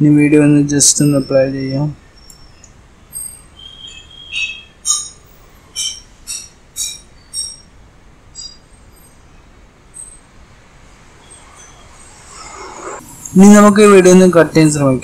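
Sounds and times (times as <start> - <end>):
birds chirping and whistling: 0.8 - 7.8, 8.4 - 13.0.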